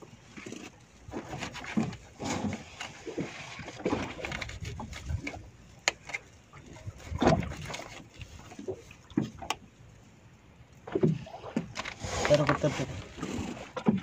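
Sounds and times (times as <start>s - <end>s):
knife scraping and knocking on hull: 0.4s - 6.2s, 7.0s - 8.1s, 11.0s - 14.0s.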